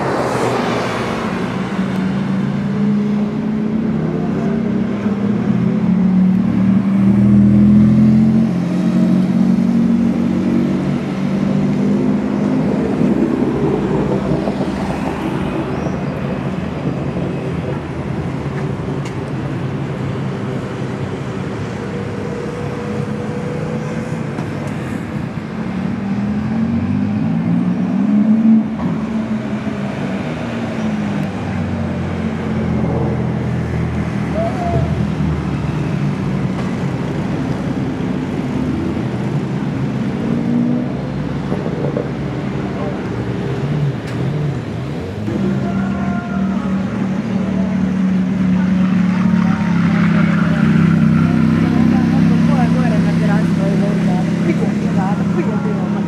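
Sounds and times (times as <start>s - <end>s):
street traffic noise: 0.0s - 56.0s
engine revving: 46.6s - 56.0s.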